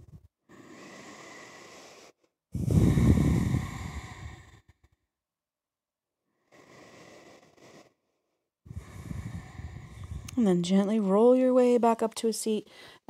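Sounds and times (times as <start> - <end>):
woman breathing deeply: 0.0 - 5.0, 6.3 - 10.4, 12.7 - 13.0.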